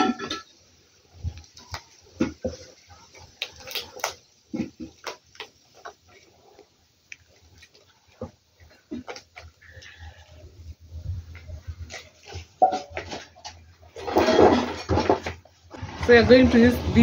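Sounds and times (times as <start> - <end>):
chicken skin peeling wet squelches: 3.0 - 4.3.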